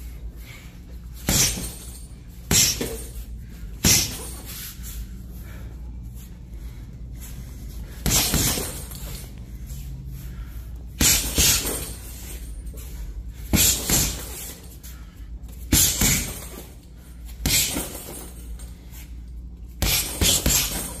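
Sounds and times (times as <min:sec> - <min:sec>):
boxing gloves punching heavy bag: 0:01.0 - 0:04.6, 0:07.7 - 0:09.4, 0:10.9 - 0:14.8, 0:15.5 - 0:18.7, 0:19.7 - 0:21.0.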